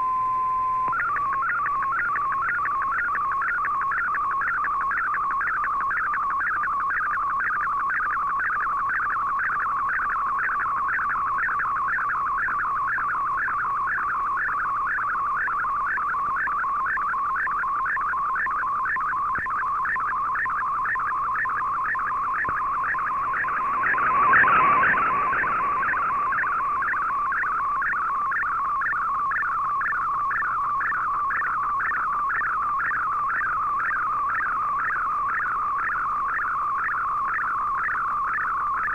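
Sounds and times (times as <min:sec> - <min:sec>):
warbling data tone: 0:00.0 - 0:38.9
radio noise surge: 0:13.5 - 0:38.7.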